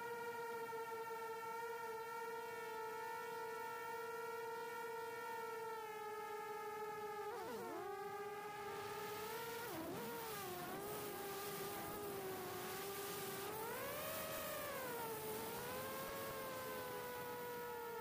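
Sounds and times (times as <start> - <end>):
quadcopter motors whining: 6.1 - 18.0.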